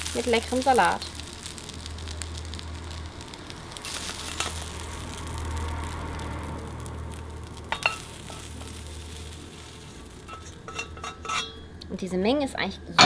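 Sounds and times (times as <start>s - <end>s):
patties sizzling in a frying pan: 0.0s - 11.4s.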